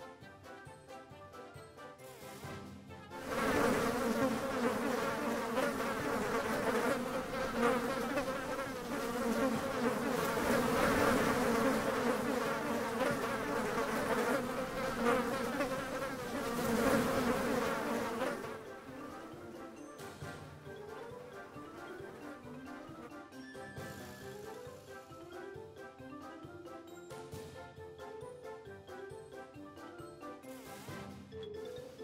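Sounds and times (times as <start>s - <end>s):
swarm of insects buzzing: 3.2s - 19.8s.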